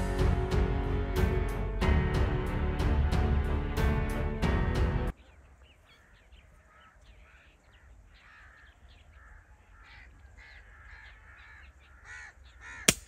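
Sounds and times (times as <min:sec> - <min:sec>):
distant crows cawing: 0:05.8 - 0:13.0.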